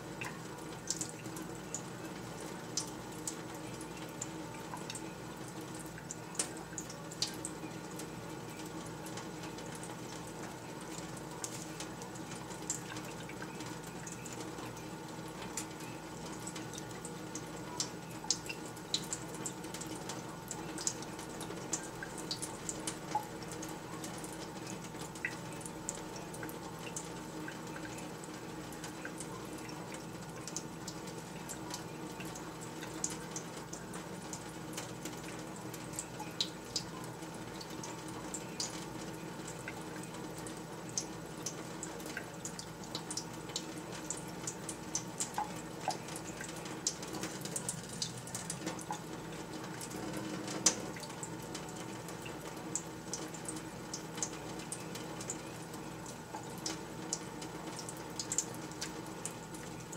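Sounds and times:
small splashes and drips: 0.0 - 59.9
tap water trickling: 28.8 - 59.9.

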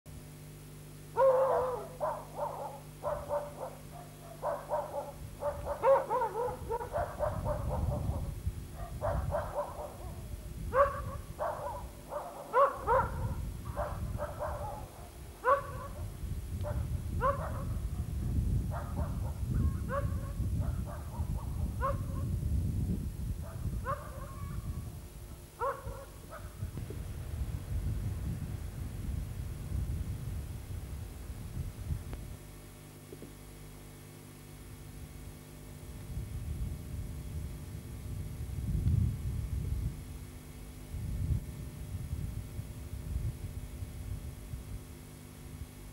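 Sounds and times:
dog barking: 1.2 - 18.1, 18.7 - 22.2, 23.4 - 24.7, 25.6 - 26.6.

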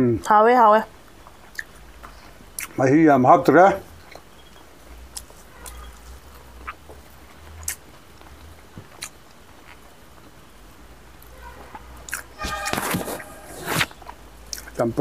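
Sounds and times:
chewing and lip smacks: 1.1 - 2.8, 4.0 - 10.4, 11.7 - 12.3, 14.0 - 14.8.

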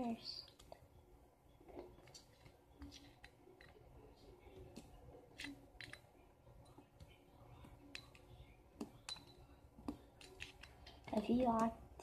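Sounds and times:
spoon clinking in glass bowl: 9.0 - 9.4.

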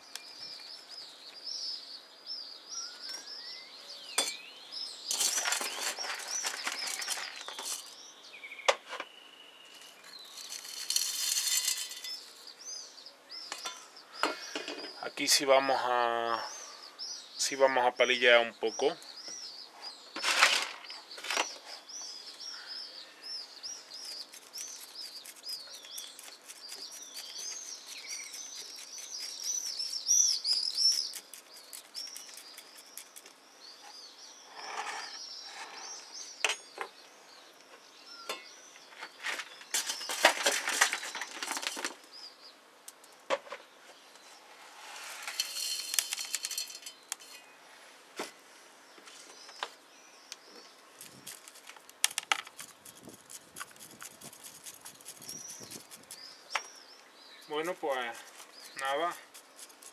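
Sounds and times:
small songbirds singing: 0.0 - 59.9
hands scraping granular substrate: 10.1 - 12.4, 23.9 - 33.2, 44.6 - 47.4, 51.0 - 56.4, 57.5 - 59.9.

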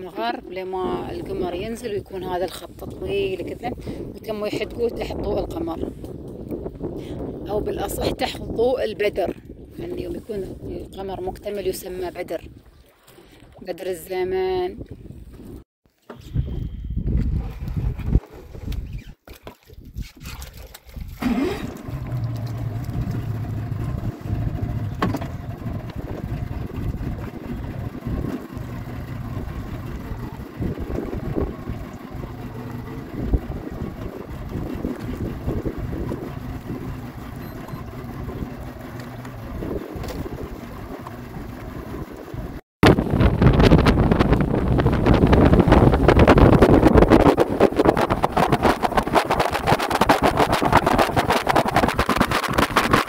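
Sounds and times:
water noise: 0.0 - 15.6, 17.0 - 53.0
wind noise: 0.0 - 53.0
speedboat engine running: 21.1 - 53.0.

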